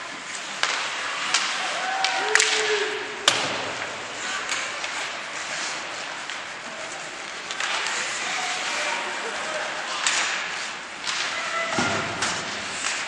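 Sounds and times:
skates scraping ice: 0.0s - 13.0s
stick hitting puck: 0.4s - 5.1s, 9.9s - 13.0s
arena crowd murmur: 1.6s - 12.1s.

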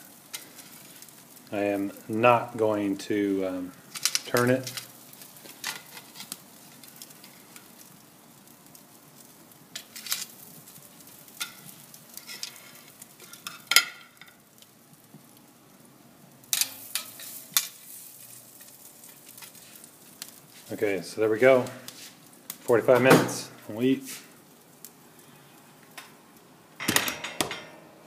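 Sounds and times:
faint sizzle: 0.0s - 26.8s
metal tongs clacking on grill: 3.9s - 7.8s, 9.7s - 10.4s, 11.3s - 14.7s, 16.5s - 19.6s.

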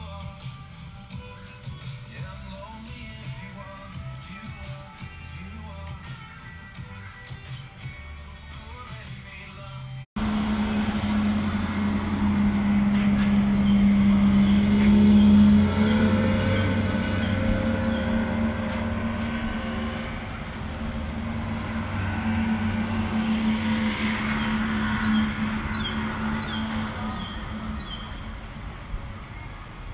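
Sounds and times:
music: 0.0s - 28.2s
motor vehicle humming: 10.2s - 29.9s.

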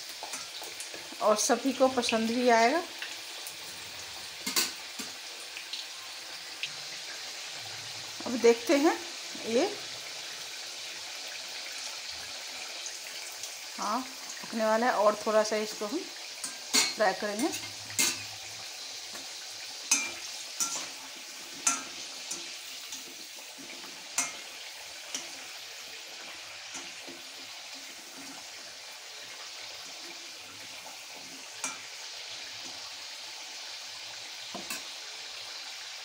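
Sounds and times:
potatoes sizzling in hot oil: 0.0s - 36.0s
metal skimmer clinking on pan: 16.4s - 18.3s, 19.9s - 21.0s, 21.6s - 22.5s, 24.2s - 24.5s.

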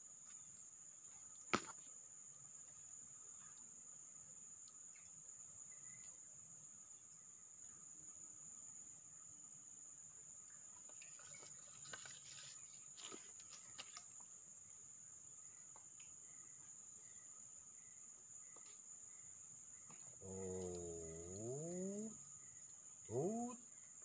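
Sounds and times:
high-pitched insect drone: 19.8s - 24.0s.

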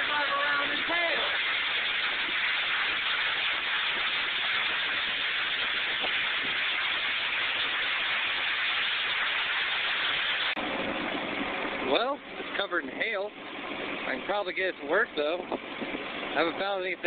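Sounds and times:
heavy rain on pavement: 0.0s - 10.6s.

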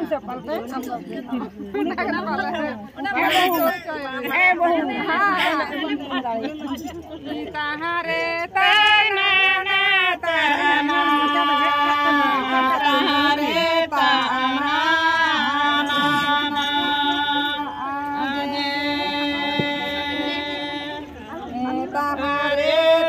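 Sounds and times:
women singing chant-like song: 7.3s - 23.0s.

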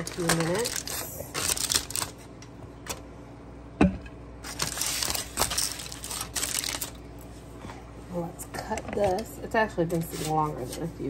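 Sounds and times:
aluminium foil crinkling: 0.0s - 3.0s, 4.4s - 7.0s.

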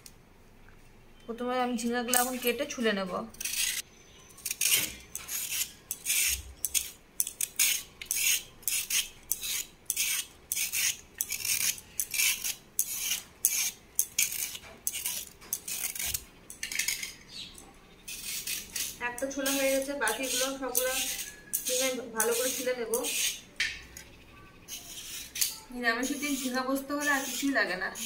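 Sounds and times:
scraping gourd skin: 4.4s - 16.9s, 18.1s - 23.4s, 24.7s - 28.0s.

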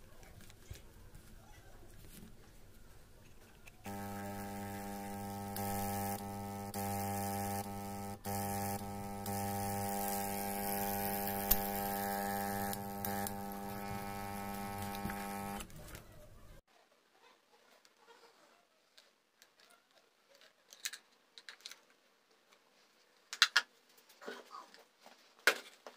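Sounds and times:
air pump buzzing hum: 3.8s - 15.9s.

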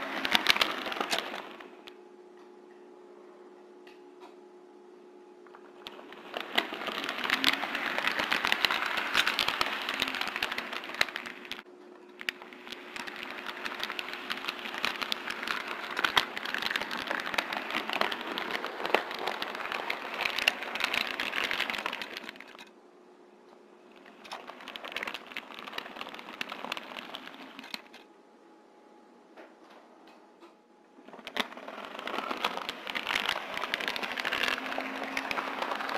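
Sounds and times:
model train wheels clattering on rails: 0.0s - 1.8s, 5.8s - 11.6s, 12.2s - 22.7s, 24.0s - 28.0s, 31.1s - 35.9s.

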